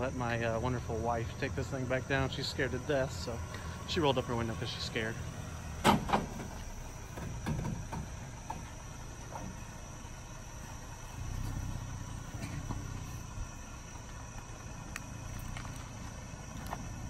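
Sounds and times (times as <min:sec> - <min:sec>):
high insect drone: 0:00.0 - 0:17.0
truck engine rumbling: 0:00.0 - 0:17.0.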